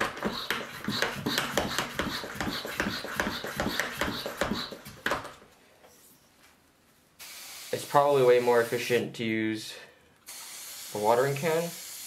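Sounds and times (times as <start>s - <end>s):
hand pump squeaking strokes: 0.2s - 4.9s.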